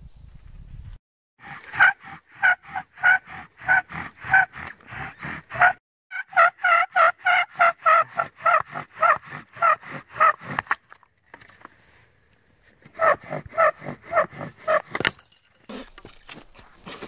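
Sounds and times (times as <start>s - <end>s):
bow drill spindle squealing: 1.4s - 10.6s, 13.0s - 15.0s.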